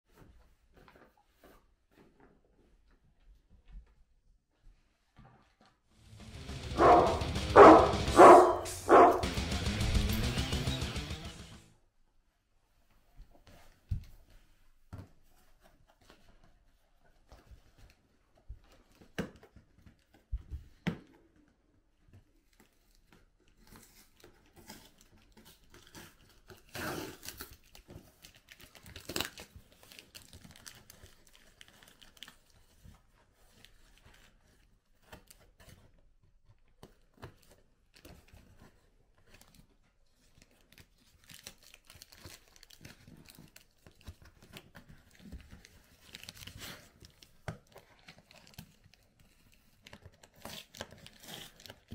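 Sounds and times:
cardboard tearing and rustling: 0:23.6 - 0:36.0, 0:40.4 - 0:51.9.

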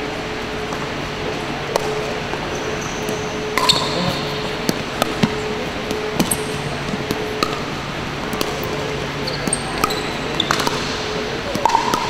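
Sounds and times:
steady hum: 0:00.0 - 0:12.0
ball bouncing on hardwood court: 0:01.7 - 0:12.0
paddles striking plastic ball: 0:08.3 - 0:08.8.

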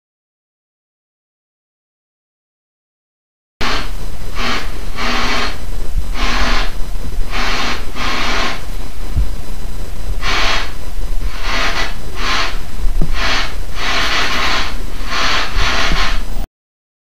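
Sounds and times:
steady low rumble: 0:03.6 - 0:16.5.

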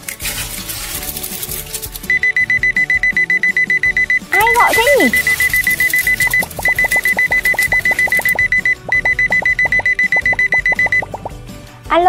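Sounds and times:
telephone ringing: 0:02.1 - 0:11.2.

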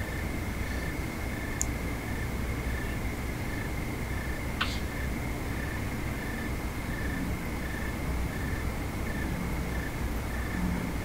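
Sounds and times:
crickets trilling: 0:00.0 - 0:11.0.

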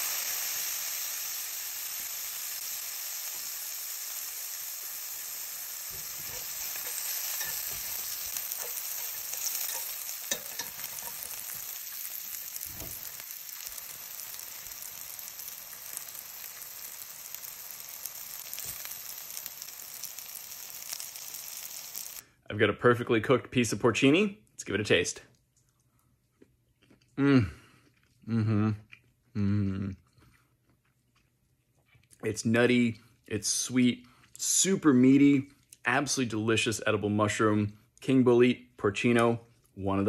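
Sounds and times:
mushrooms sizzling in oil: 0:00.0 - 0:22.2
chopsticks knocking and scraping: 0:05.9 - 0:11.6.

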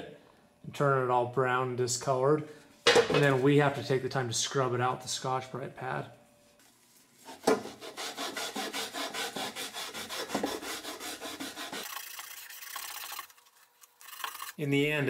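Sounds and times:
abrasive pad scrubbing aluminum tube: 0:06.7 - 0:13.1.

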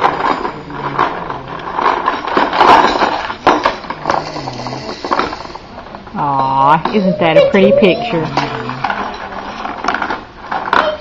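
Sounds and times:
sharp knocks and clatter: 0:00.0 - 0:04.3
indistinct background voices: 0:03.8 - 0:09.8.

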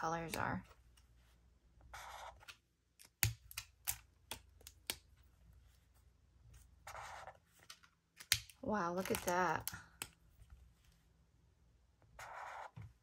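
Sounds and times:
highlighter stroke on paper: 0:01.9 - 0:02.5, 0:12.2 - 0:12.9
marker caps clicking: 0:02.4 - 0:05.1, 0:07.6 - 0:10.2.

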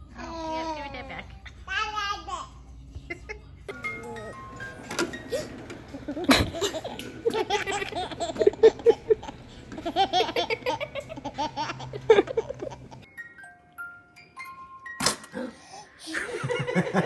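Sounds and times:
baby giggling: 0:05.3 - 0:13.1.

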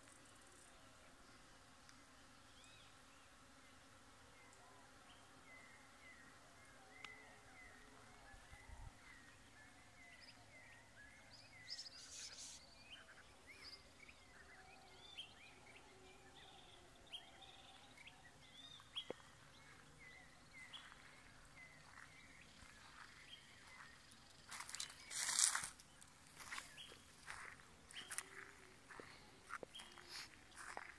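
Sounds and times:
birds chirping: 0:04.4 - 0:30.9
rustling crunch: 0:24.4 - 0:30.9.

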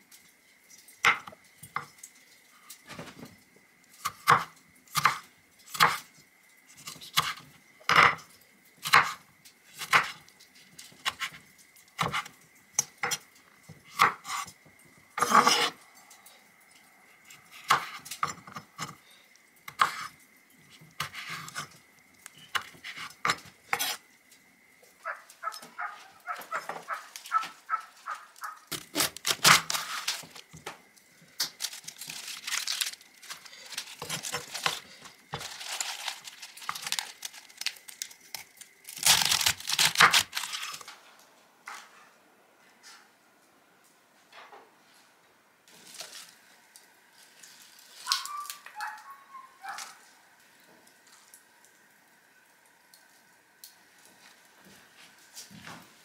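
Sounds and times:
lettuce leaves crinkling: 0:25.0 - 0:41.0, 0:45.7 - 0:50.2.

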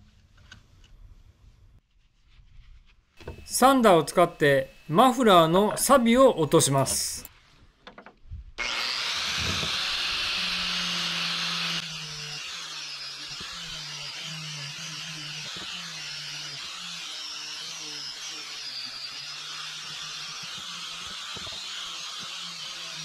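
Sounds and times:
angle grinder wire brushing metal: 0:08.6 - 0:23.0.

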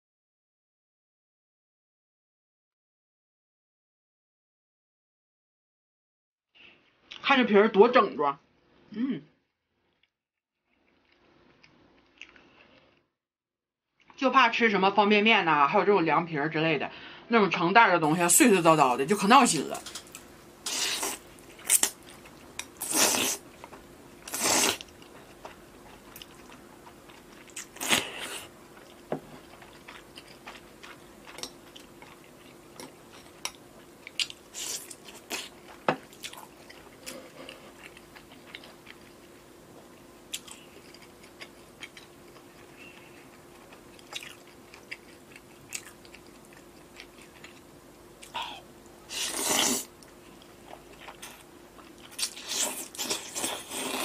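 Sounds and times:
wet chewing: 0:20.1 - 0:48.4, 0:49.1 - 0:54.0
noodle slurping: 0:24.3 - 0:24.9, 0:49.1 - 0:49.9, 0:52.2 - 0:54.0.

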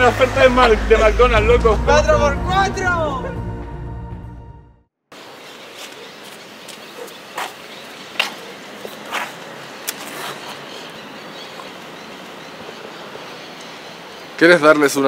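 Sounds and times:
street ambience: 0:00.0 - 0:15.0
footsteps on pavement: 0:05.4 - 0:11.8.

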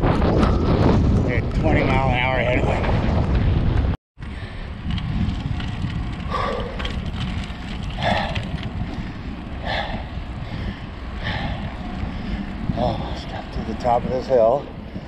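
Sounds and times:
wind rumbling on microphone: 0:00.0 - 0:15.0
cyclist breathing heavily: 0:04.2 - 0:14.0, 0:14.6 - 0:15.0.

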